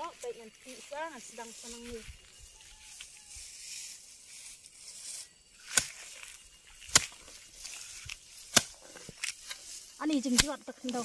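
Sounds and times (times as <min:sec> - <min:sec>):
grass leaves rustling: 0:00.0 - 0:11.0
tool chopping into grass clump: 0:05.6 - 0:11.0.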